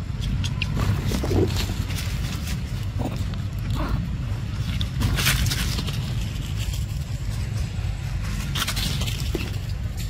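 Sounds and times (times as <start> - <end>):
steady low rumble: 0.0 - 10.0
dry leaves crackling and rustling: 0.4 - 10.0.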